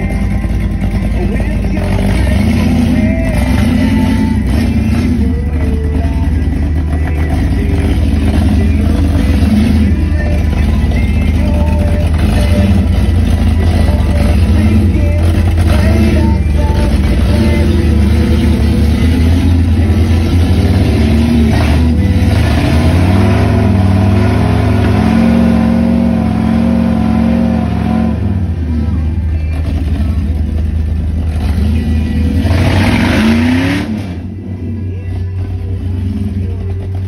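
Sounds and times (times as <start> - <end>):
engine revving under load: 7.3 - 34.7.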